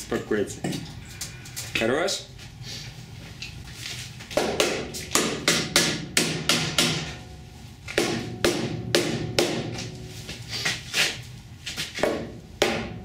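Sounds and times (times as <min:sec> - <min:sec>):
hammer striking steel: 0:04.4 - 0:07.3, 0:08.0 - 0:09.9, 0:12.0 - 0:13.0.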